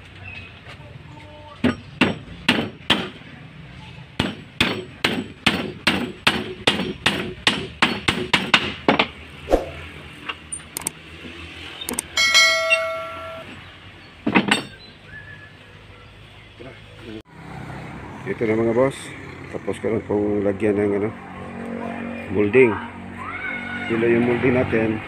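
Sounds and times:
ringing metallic clang: 0:12.1 - 0:13.5.

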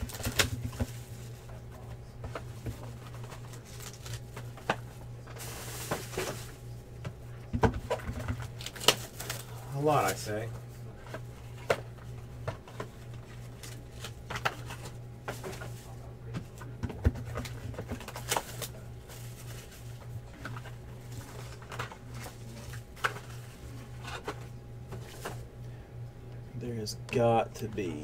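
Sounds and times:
packaging crinkling and rustling: 0:00.0 - 0:01.6, 0:02.3 - 0:06.6, 0:07.8 - 0:10.4, 0:12.7 - 0:15.9, 0:16.6 - 0:25.4
steady low hum: 0:00.0 - 0:28.0.

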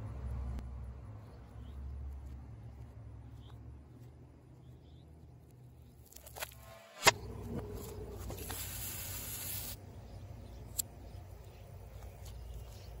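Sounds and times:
hiss: 0:08.4 - 0:09.8.

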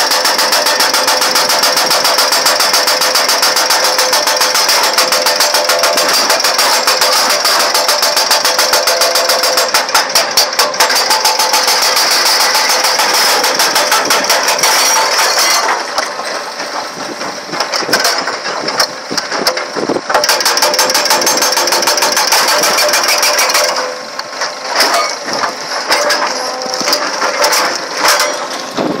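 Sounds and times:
hydraulic breaker hammering rock: 0:00.0 - 0:29.0
stone cracking: 0:00.2 - 0:16.9.

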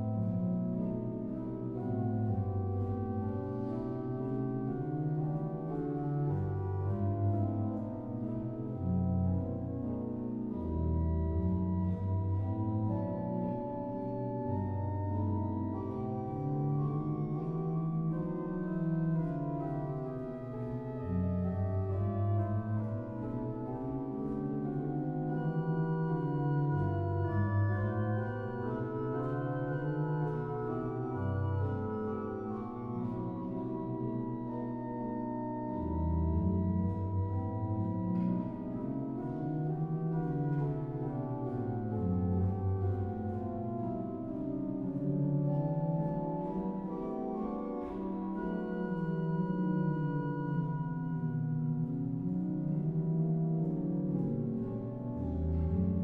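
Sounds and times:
pipe organ playing: 0:00.0 - 0:56.0.

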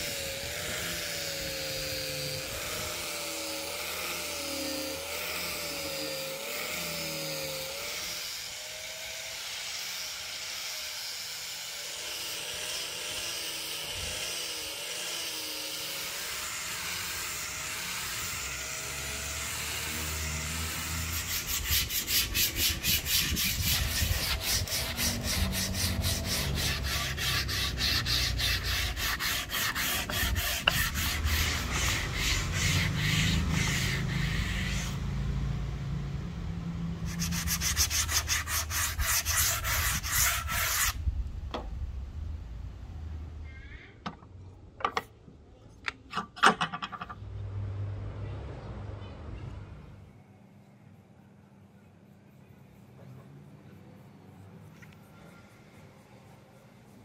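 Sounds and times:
small motor running: 0:00.0 - 0:35.1
sanding strokes on wood: 0:00.0 - 0:35.3, 0:37.0 - 0:41.0.

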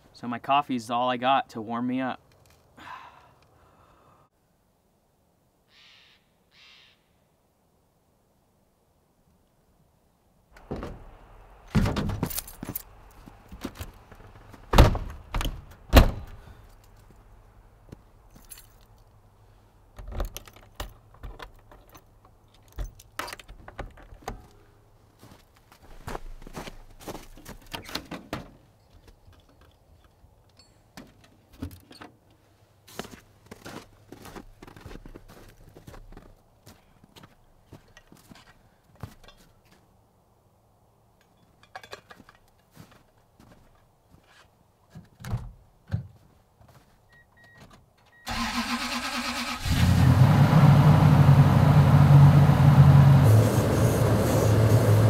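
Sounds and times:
door thudding shut: 0:10.6 - 0:11.1, 0:11.7 - 0:12.3, 0:14.7 - 0:16.4
keys jingling: 0:12.2 - 0:13.3, 0:18.3 - 0:19.1, 0:20.3 - 0:23.5.

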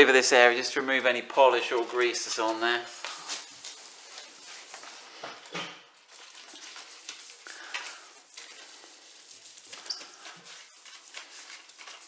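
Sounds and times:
wipe rubbing on metal: 0:06.6 - 0:12.0.

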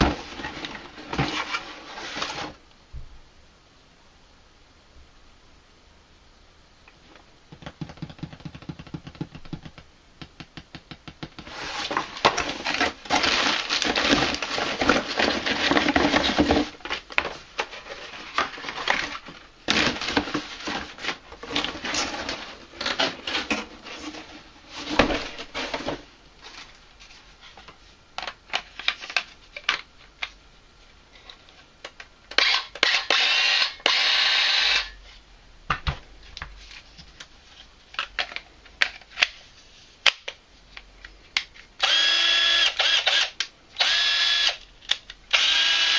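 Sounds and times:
cardboard packaging rustling: 0:00.0 - 0:02.6, 0:11.3 - 0:29.8.

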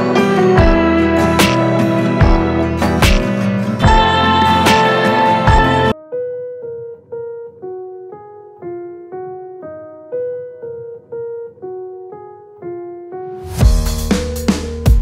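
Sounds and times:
slow keyboard melody: 0:00.0 - 0:15.0
electronic beat with drums: 0:00.6 - 0:05.9, 0:13.6 - 0:15.0.

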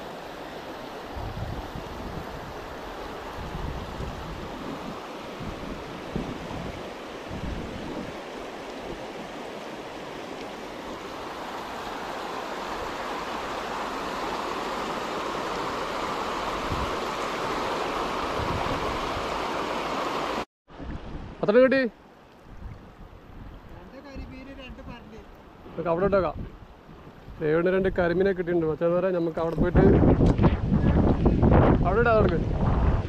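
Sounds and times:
river rapids rushing over rocks: 0:08.1 - 0:20.4.

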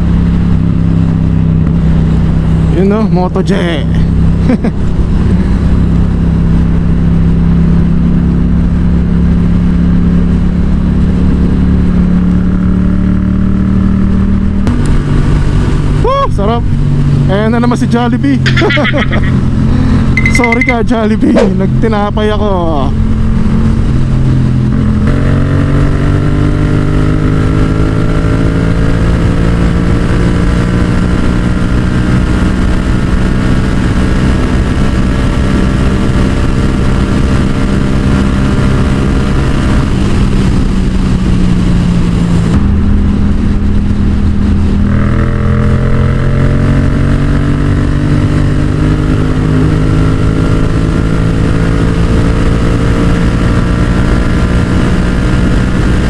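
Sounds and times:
motorcycle engine running hard: 0:00.0 - 0:56.0
wind rush on microphone: 0:13.8 - 0:17.5, 0:22.9 - 0:45.3.

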